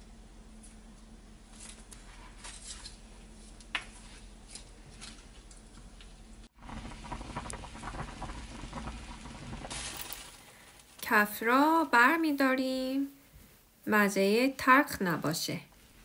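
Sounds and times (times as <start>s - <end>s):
broth boiling hard: 6.4s - 12.3s.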